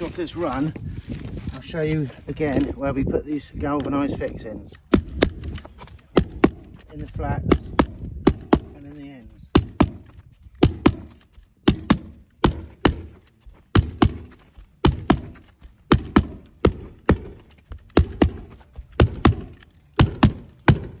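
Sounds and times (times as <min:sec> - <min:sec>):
hammer tacker strikes: 0:06.2 - 0:21.0.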